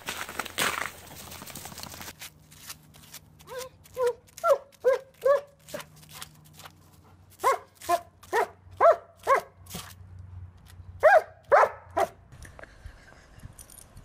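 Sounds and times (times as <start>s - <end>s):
dog barking: 3.5s - 5.8s, 7.4s - 9.6s, 11.0s - 12.2s.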